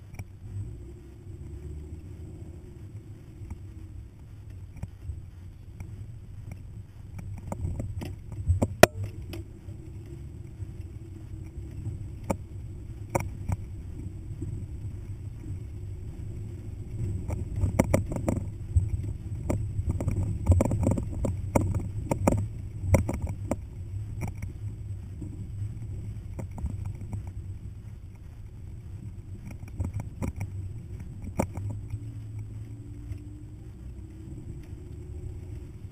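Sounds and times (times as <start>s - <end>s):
engine and drivetrain rumble: 0.0s - 35.9s
vehicle knocks and rattles: 7.2s - 27.4s.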